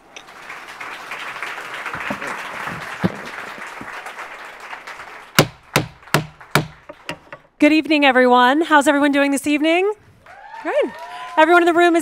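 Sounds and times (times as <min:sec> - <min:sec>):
audience applauding: 0:00.0 - 0:07.1, 0:10.2 - 0:12.0.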